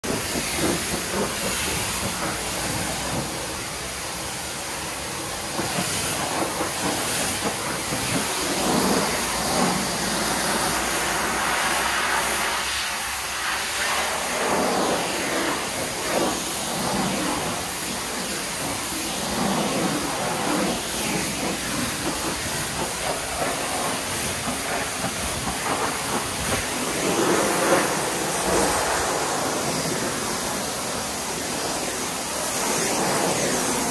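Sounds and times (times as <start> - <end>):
pressure washer spraying glass: 0.0 - 33.9.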